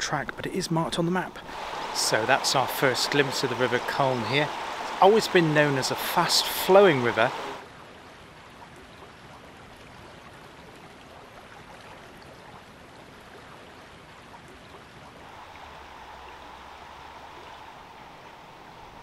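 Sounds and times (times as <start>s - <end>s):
faint steady hum: 0.0s - 19.0s
river water rushing: 1.3s - 7.8s, 15.1s - 19.0s.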